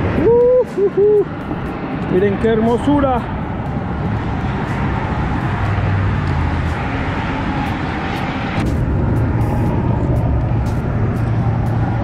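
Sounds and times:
road traffic rumble: 0.0 - 12.0.

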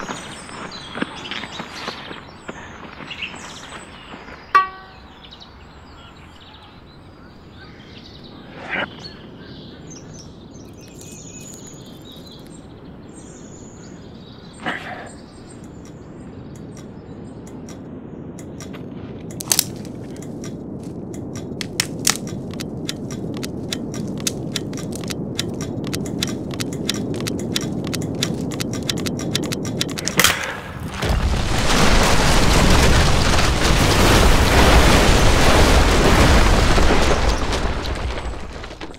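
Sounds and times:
sharp cracks: 16.6 - 38.9
loud explosion with debris: 30.1 - 38.9.

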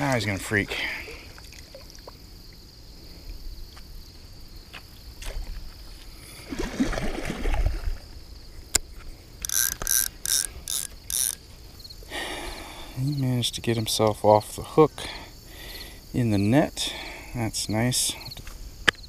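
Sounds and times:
water sloshing: 0.0 - 2.3, 5.2 - 8.2
fish splashing: 6.3 - 8.2
sharp click: 8.7 - 11.4
rasping clicks: 9.4 - 11.4.

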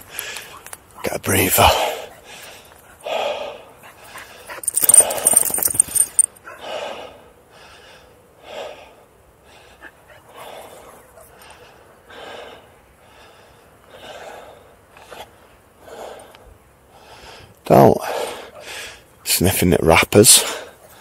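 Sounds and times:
man breathing hard: 0.0 - 0.6, 1.6 - 19.2, 20.3 - 21.0.

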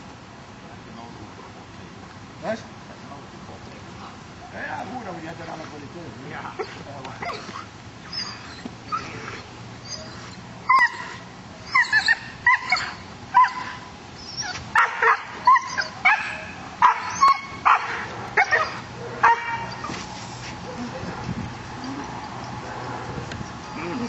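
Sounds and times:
dog barking: 12.5 - 13.8, 14.8 - 19.9.

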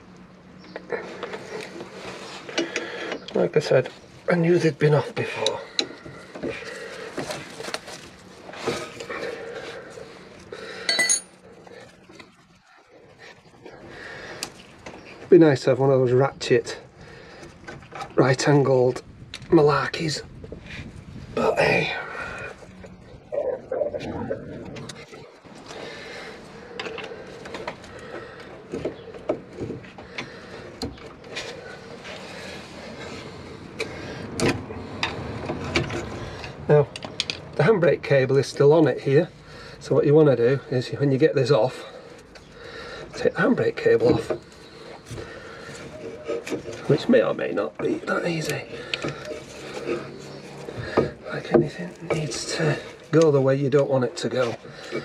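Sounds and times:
bright ringing metal clink: 10.9 - 11.3.

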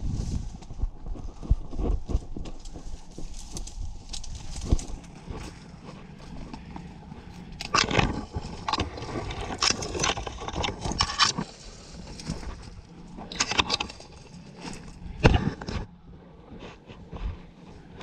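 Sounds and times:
footsteps crunching dry leaves: 0.0 - 9.7, 11.4 - 13.3
branches scraping: 0.0 - 18.0.

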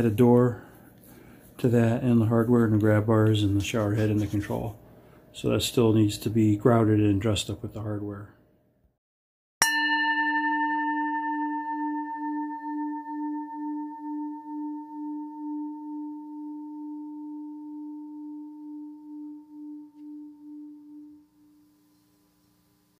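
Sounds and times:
struck bell ringing: 9.6 - 16.1.

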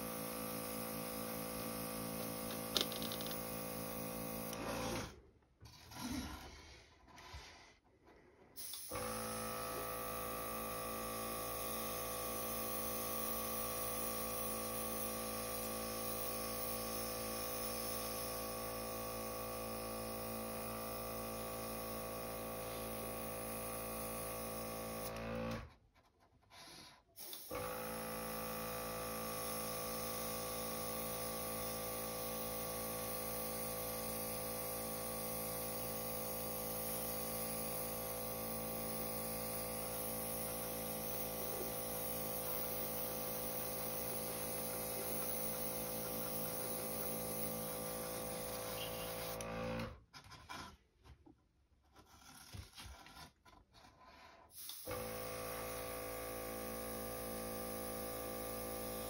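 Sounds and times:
airbrush compressor humming: 0.0 - 5.1, 8.6 - 25.6, 27.2 - 49.9, 54.6 - 59.0
air hissing through airbrush: 30.3 - 49.4.

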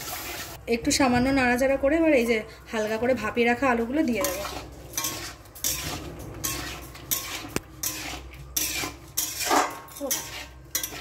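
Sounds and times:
utensil scraping a cooking pan: 3.7 - 11.0.

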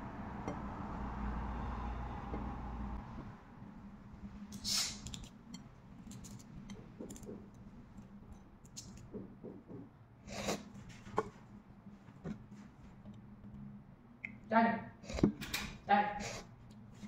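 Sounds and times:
eggshell crackling: 4.5 - 9.1.

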